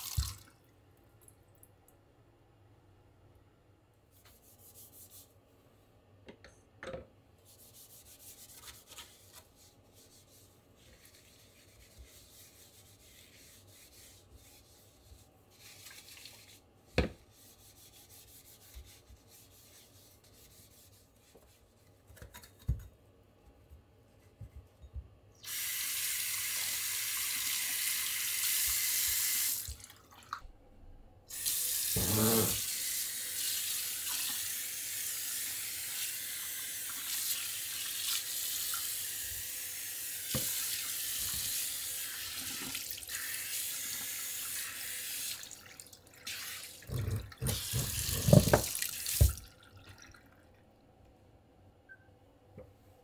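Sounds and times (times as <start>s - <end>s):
tap water running into sink: 0.0s - 0.6s, 42.2s - 50.3s
scrubbing at a washbasin: 7.4s - 22.4s, 31.3s - 32.7s, 45.2s - 50.0s.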